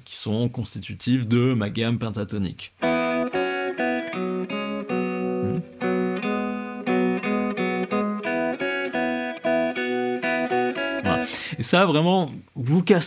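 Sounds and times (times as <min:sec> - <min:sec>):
electric guitar double stops: 0:02.8 - 0:11.5.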